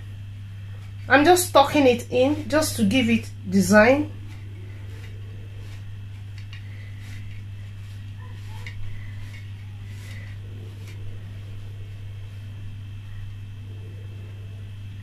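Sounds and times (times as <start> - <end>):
steady low hum: 0.0 - 15.0
hands folding dough in pan: 3.9 - 12.7.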